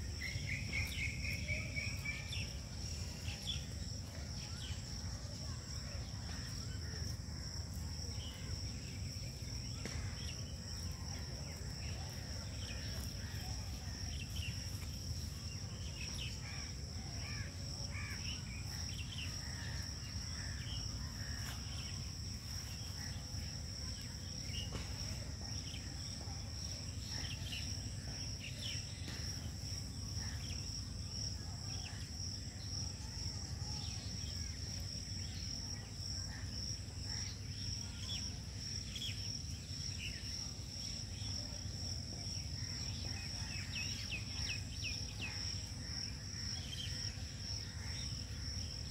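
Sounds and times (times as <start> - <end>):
insects trilling: 0.0 - 48.9.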